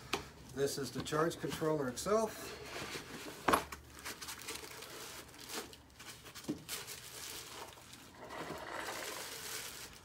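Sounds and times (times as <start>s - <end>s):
packing foam rustling: 2.7s - 10.0s
plastic bag crinkling: 3.8s - 10.0s.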